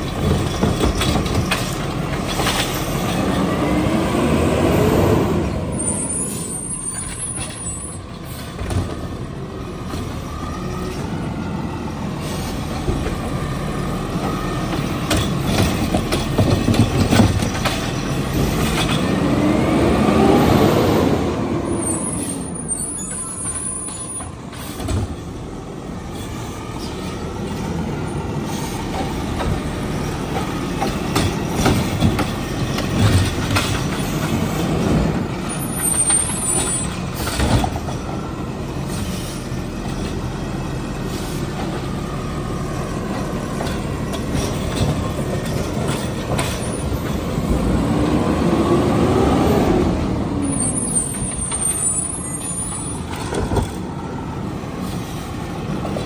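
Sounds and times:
clunks from arm and cart: 30.3s - 34.4s, 35.9s - 38.2s.

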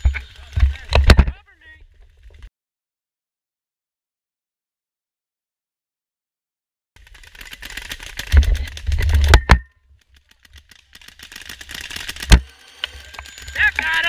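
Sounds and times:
launcher and gear rattling: 7.0s - 14.0s.

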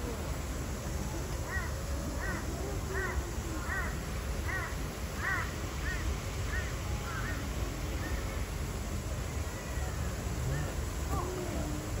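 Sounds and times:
crow cawing: 3.0s - 7.3s.

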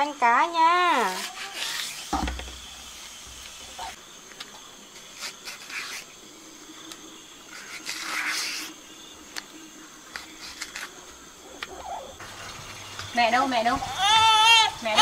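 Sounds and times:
rustling scrape: 5.0s - 6.1s, 7.5s - 8.8s.

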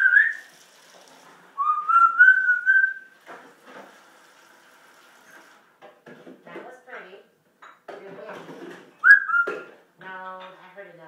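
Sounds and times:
parrot whistling: 0.0s - 0.5s, 1.6s - 3.1s, 9.0s - 9.7s.

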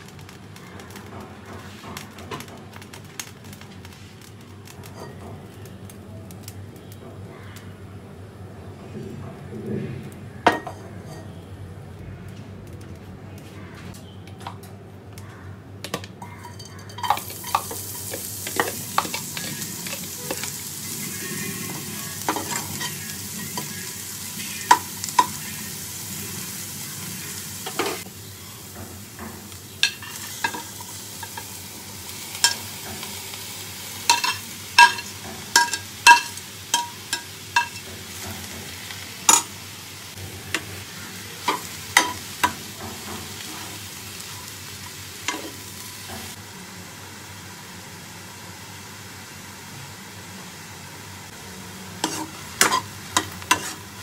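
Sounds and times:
food sizzling in hot oil: 0.0s - 6.9s, 16.2s - 54.0s
metal spoon scraping a pan: 10.6s - 11.4s, 16.2s - 25.6s, 34.1s - 39.5s, 45.3s - 45.7s, 52.0s - 54.0s.

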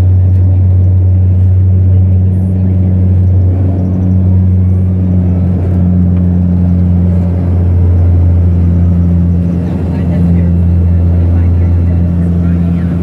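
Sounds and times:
turboprop cabin drone: 0.0s - 13.0s.

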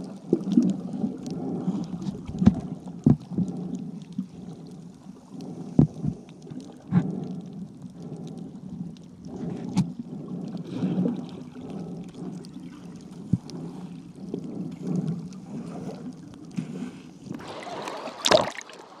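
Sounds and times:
muffled underwater rumble: 0.0s - 18.4s
loud water splash: 17.4s - 19.0s.

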